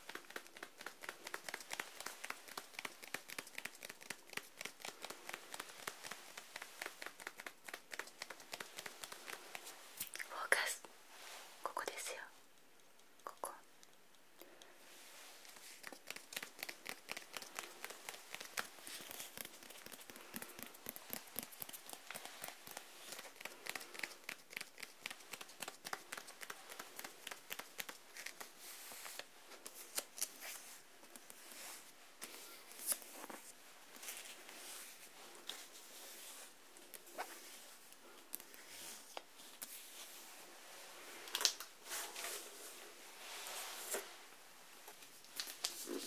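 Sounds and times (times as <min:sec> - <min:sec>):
fingernails tapping and scratching book: 0:15.9 - 0:28.4.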